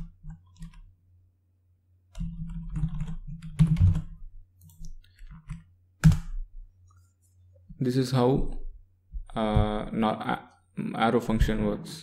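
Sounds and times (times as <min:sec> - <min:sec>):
typing on a computer keyboard: 0:00.3 - 0:00.8.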